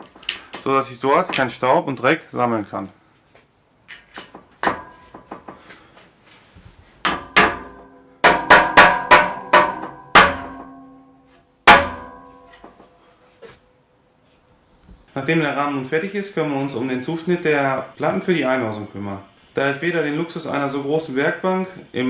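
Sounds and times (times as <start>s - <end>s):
aluminium frame ringing: 4.2s - 5.5s, 7.0s - 13.1s
mallet striking plastic caps: 7.1s - 10.8s.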